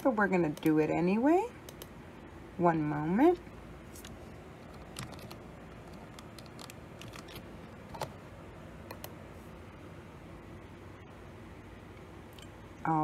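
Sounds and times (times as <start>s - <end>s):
mouse and keyboard clicks: 4.0s - 8.2s.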